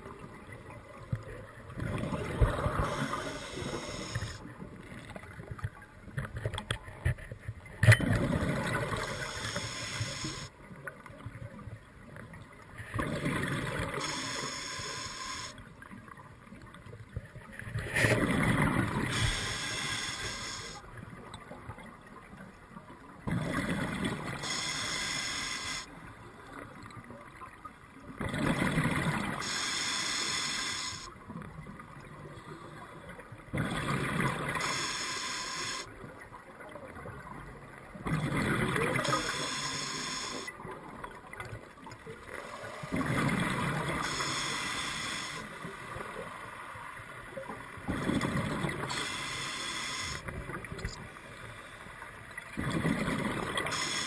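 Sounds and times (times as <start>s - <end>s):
regulator inhalations: 2.7s - 4.4s, 9.0s - 10.5s, 14.0s - 15.6s, 19.1s - 20.8s, 24.4s - 25.9s, 29.4s - 31.1s, 34.6s - 35.9s, 39.0s - 40.5s, 44.0s - 45.7s, 48.8s - 50.3s, 53.6s - 54.0s
exhaled bubbles underwater: 38.0s - 39.6s, 42.9s - 44.1s, 52.4s - 54.0s.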